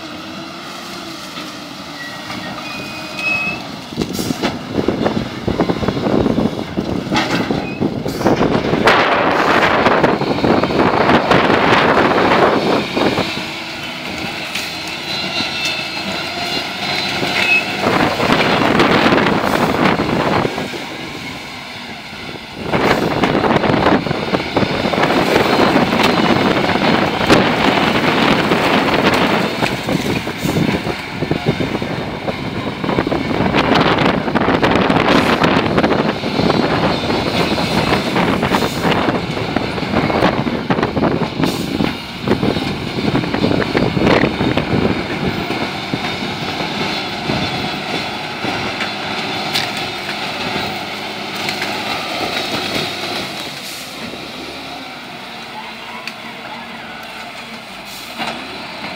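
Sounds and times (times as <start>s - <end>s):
diesel engine under load: 0.0s - 58.9s.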